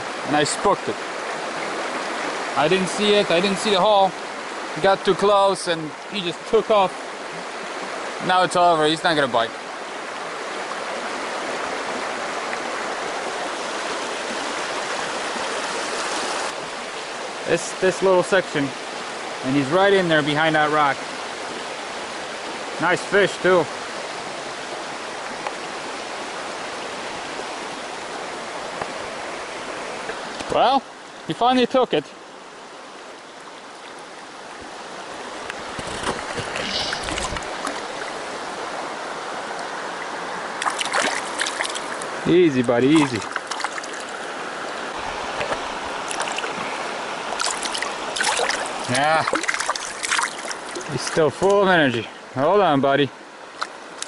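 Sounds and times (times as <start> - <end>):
stream running over rocks: 0.0 - 54.0
splashing in water: 35.6 - 38.2, 40.5 - 51.6.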